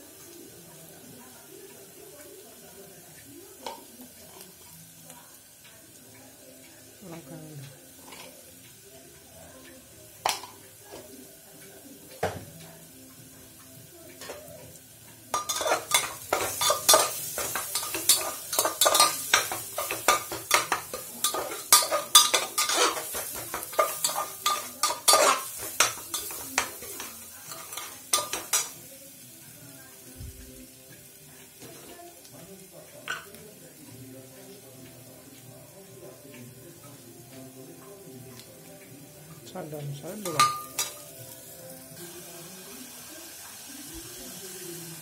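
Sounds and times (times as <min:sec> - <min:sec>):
onions frying sizzle: 0:00.0 - 0:45.0
metal spatula scraping a pot: 0:15.4 - 0:28.6.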